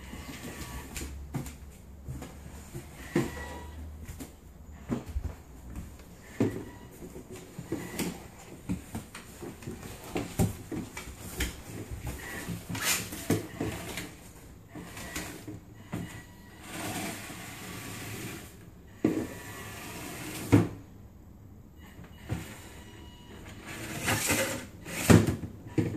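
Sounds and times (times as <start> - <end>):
cardboard box scraping along floor: 0.0 - 1.1, 2.0 - 3.8, 16.6 - 18.6, 23.6 - 25.3.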